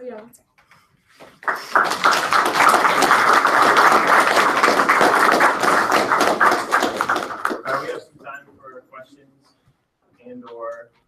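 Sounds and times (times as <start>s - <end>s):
audience applauding loudly: 1.2s - 8.0s.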